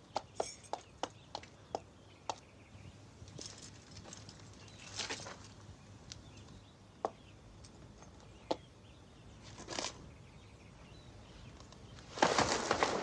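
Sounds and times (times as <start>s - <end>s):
rustling: 11.5s - 13.0s.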